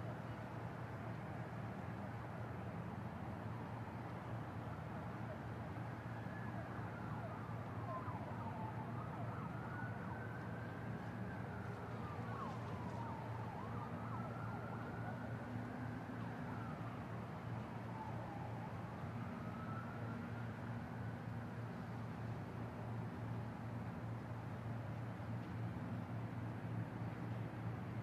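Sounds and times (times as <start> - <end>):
low hum of city traffic: 0.0 - 28.0
siren wailing: 7.1 - 15.3.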